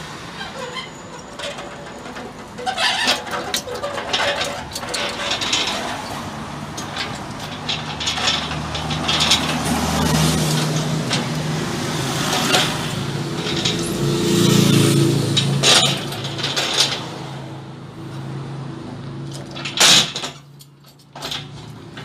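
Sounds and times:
vehicle engine humming: 0:00.0 - 0:19.8
pallet truck rattling over asphalt: 0:00.2 - 0:17.5, 0:19.3 - 0:22.0.

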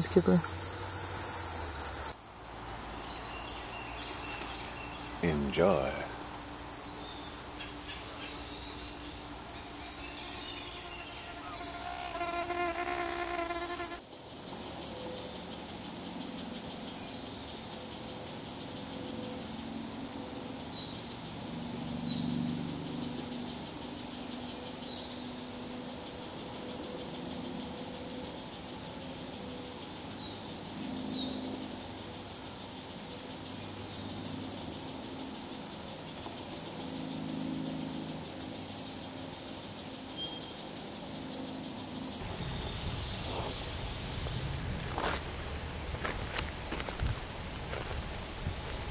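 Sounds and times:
high-pitched insect chorus: 0:00.0 - 0:48.9.

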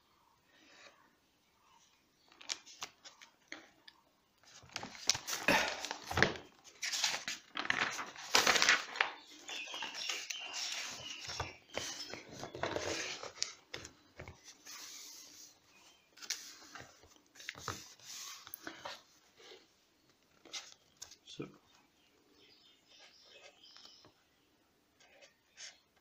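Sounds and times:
paper page rustling: 0:04.4 - 0:19.1.

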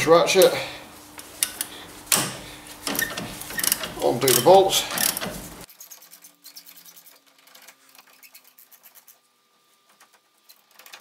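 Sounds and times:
ratchet clicking rapidly: 0:02.8 - 0:09.2.

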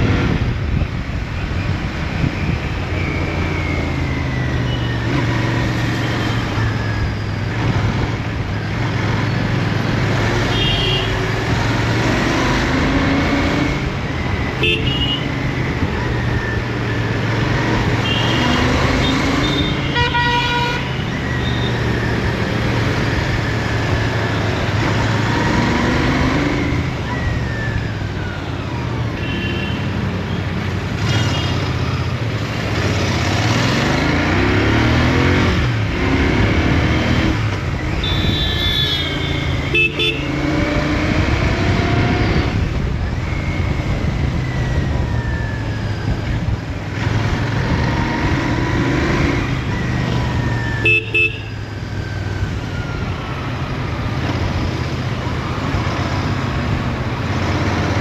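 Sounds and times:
motorcycle engine revving: 0:30.9 - 0:45.3
short horn beeps: 0:38.0 - 0:40.3.

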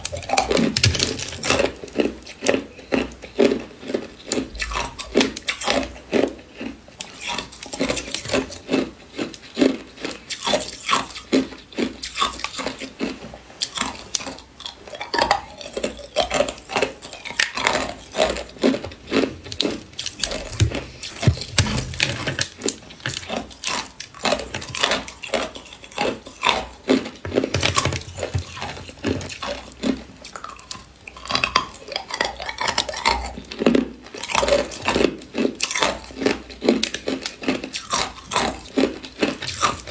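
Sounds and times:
ice cubes crunched between teeth: 0:00.0 - 0:39.9.

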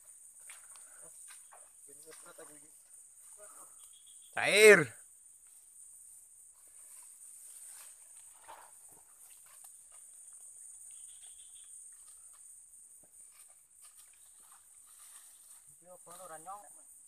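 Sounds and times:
insect drone: 0:00.0 - 0:17.0
rustles in undergrowth: 0:05.2 - 0:16.7.

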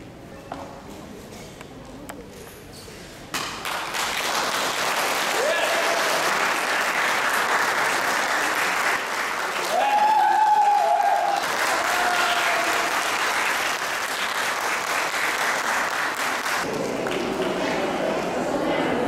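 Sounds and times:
audience applauding: 0:03.6 - 0:17.8
high call from audience: 0:05.2 - 0:06.8, 0:08.2 - 0:13.4.

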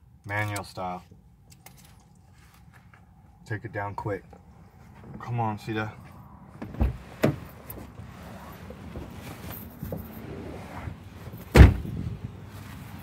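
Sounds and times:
car door slamming shut: 0:06.6 - 0:07.5, 0:11.4 - 0:12.1.

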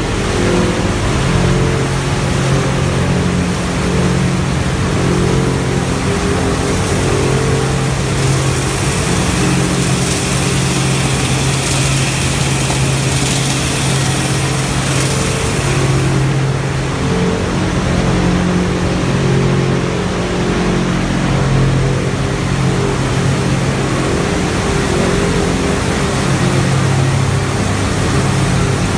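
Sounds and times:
electric motor hum: 0:00.0 - 0:18.8
water sprays hissing: 0:06.9 - 0:16.3.

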